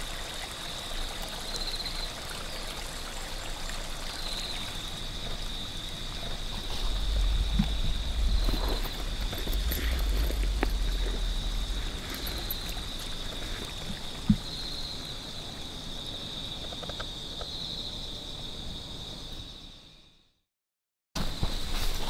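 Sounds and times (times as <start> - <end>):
high-pitched insect chorus: 0.0 - 20.2
wind rumble on microphone: 5.0 - 14.7.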